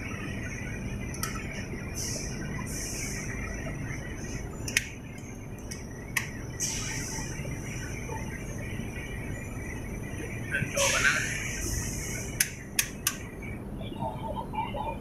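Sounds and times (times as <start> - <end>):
machinery hum: 0.0 - 15.0
sharp clicks: 12.4 - 13.2.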